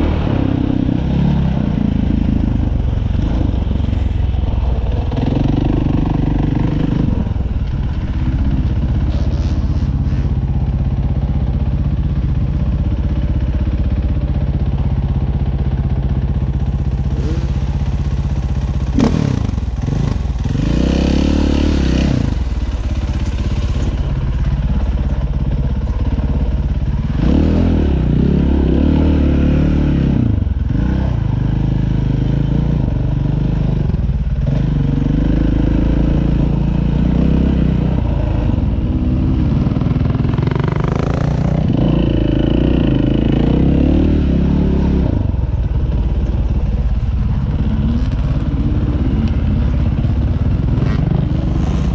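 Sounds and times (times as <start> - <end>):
dirt bike engine revving: 17.1 - 17.9, 18.9 - 24.9, 34.5 - 51.9.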